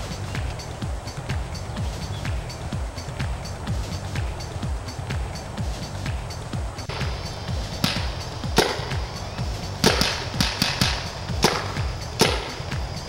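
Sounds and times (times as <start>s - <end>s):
electronic music with low beat: 0.0s - 13.0s
paintball markers firing: 9.9s - 12.6s.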